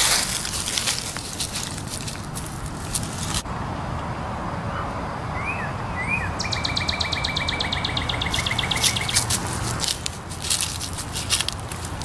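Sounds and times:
dry leaves crunching under paws: 0.0 - 3.5, 8.0 - 12.0
low outdoor rumble: 0.0 - 12.0
songbird chirping: 4.7 - 12.0.

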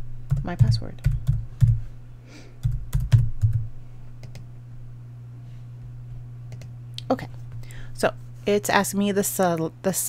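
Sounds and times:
steady low hum: 0.0 - 10.0
keyboard keys tapping: 2.6 - 3.6.

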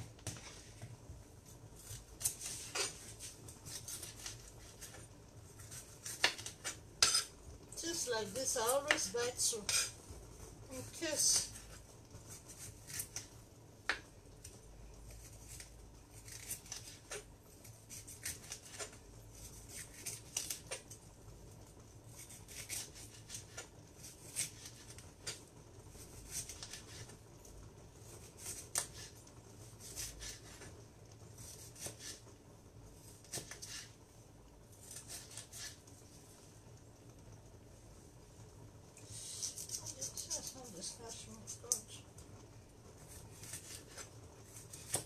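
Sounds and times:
knife slicing tomatoes: 1.8 - 7.3, 22.1 - 27.2, 28.1 - 30.7, 31.4 - 32.2, 33.0 - 34.0, 34.8 - 35.8, 39.1 - 40.6, 43.0 - 45.0.

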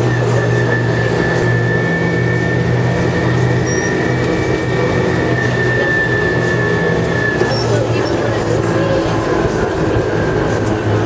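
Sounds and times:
engine low hum: 0.0 - 11.0
high whine: 0.0 - 11.0
road noise: 0.0 - 11.0.

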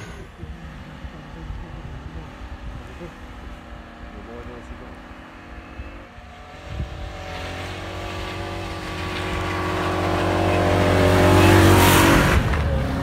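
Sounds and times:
engine pulling hard: 0.0 - 13.0
snow spraying from wheels: 6.6 - 13.0.

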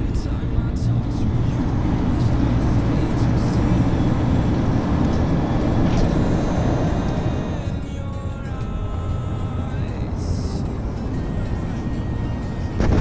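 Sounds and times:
wind buffeting microphone: 12.7 - 13.0.

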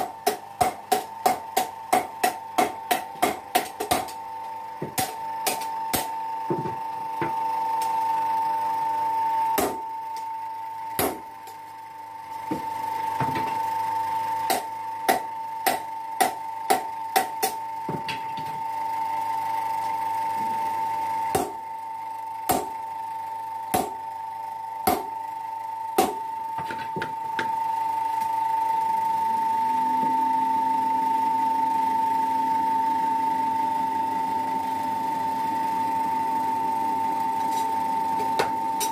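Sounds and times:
low motor hum: 0.0 - 38.9
power hammer motor whine: 0.0 - 38.9.

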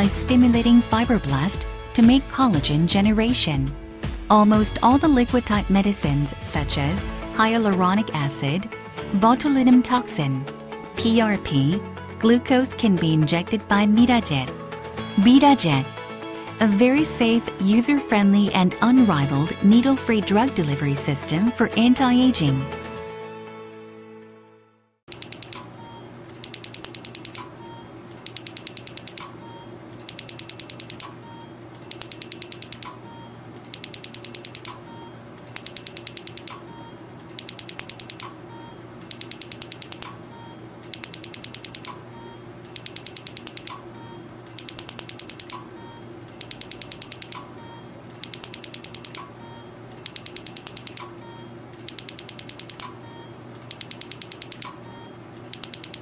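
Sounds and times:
steady machine hum: 0.0 - 22.6, 25.1 - 56.0
rapid clicks: 25.1 - 25.7, 26.3 - 33.0, 33.6 - 38.4, 39.0 - 40.2, 40.8 - 47.5, 48.1 - 56.0.

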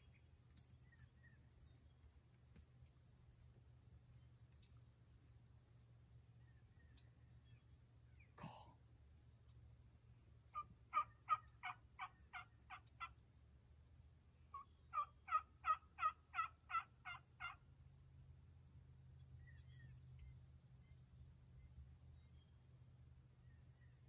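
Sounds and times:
turkey yelping: 10.5 - 13.2, 14.5 - 17.6.

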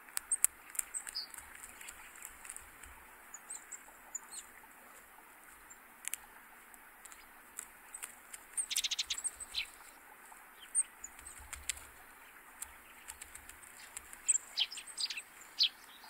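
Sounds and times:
ticks: 0.0 - 4.6, 5.4 - 6.3, 7.0 - 9.8, 10.8 - 15.2
small birds chirping: 0.0 - 16.0.

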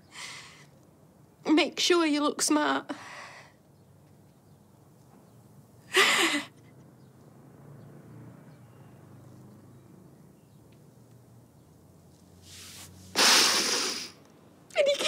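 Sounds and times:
woman sobbing: 5.9 - 6.6.

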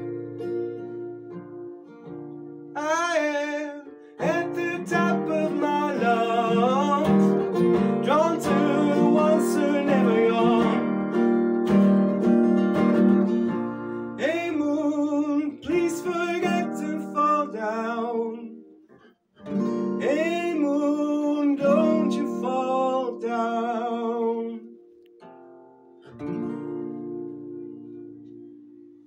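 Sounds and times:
acoustic guitar: 0.0 - 29.0
man singing: 2.7 - 11.4, 13.5 - 18.7, 19.8 - 24.7.

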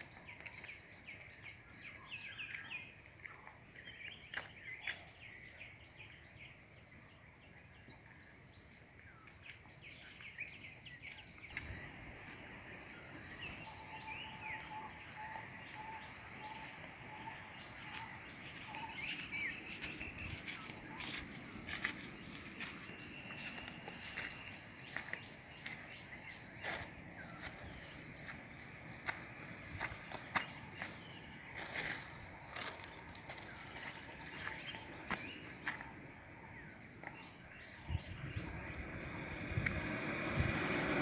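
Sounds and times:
insect drone: 0.0 - 41.0
bird chirps: 7.8 - 38.9.

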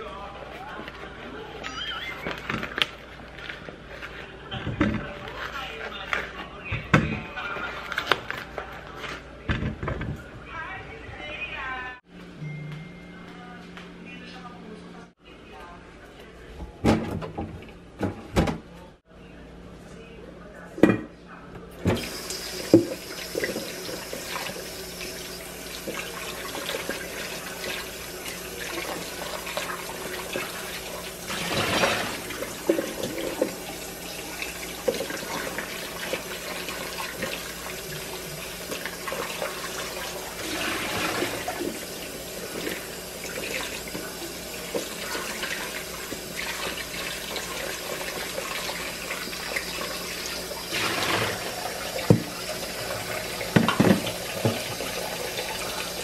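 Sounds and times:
faucet running into metal bowl: 21.9 - 56.0.

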